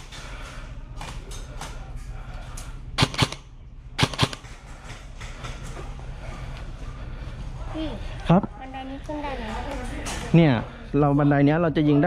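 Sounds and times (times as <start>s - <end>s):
airsoft guns firing: 3.0s - 4.7s.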